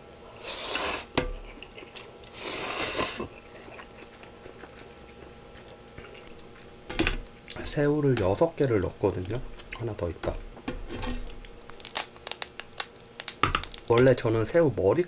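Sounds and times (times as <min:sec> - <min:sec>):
chewing with wet clicks: 0:01.5 - 0:02.4, 0:03.3 - 0:07.6.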